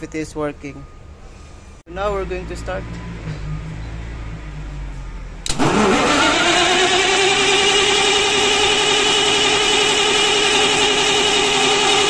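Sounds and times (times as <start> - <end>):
diesel engine starting and running: 0.0 - 12.0
starter click: 5.4 - 5.7.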